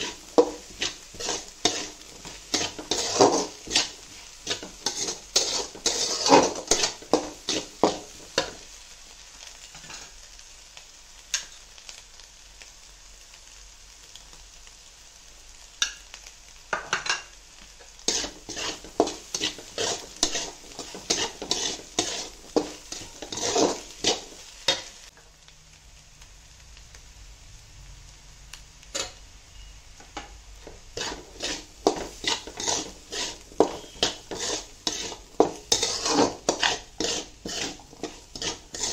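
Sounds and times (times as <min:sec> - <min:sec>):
metal spatula scraping wok: 0:00.0 - 0:08.7, 0:09.7 - 0:10.2, 0:17.9 - 0:25.0, 0:28.9 - 0:38.9
faint sizzle: 0:00.0 - 0:38.9.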